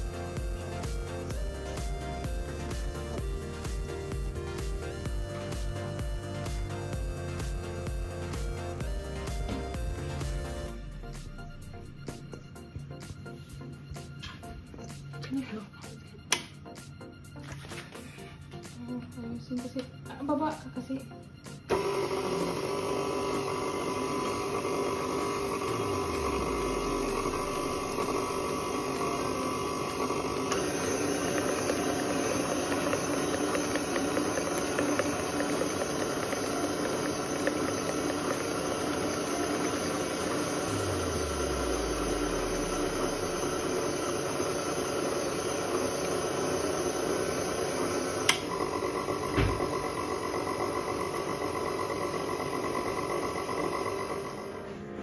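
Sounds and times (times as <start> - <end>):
stand mixer motor whining: 0.0 - 12.6, 21.7 - 55.0.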